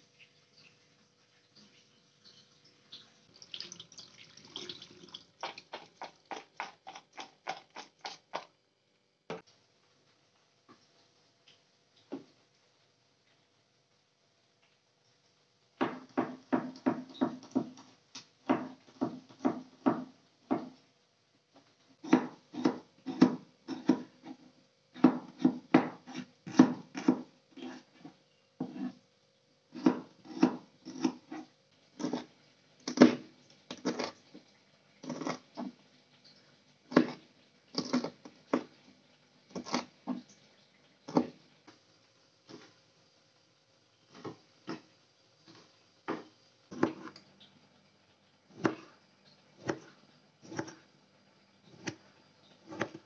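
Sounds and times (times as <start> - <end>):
knife chopping on plastic board: 15.8 - 20.8, 22.0 - 24.4, 25.0 - 27.8, 29.8 - 31.4, 32.9 - 34.1, 36.9 - 37.2, 37.8 - 38.7, 41.1 - 41.4, 46.1 - 47.2, 48.6 - 48.9, 49.6 - 50.8, 51.7 - 52.0, 52.6 - 53.0.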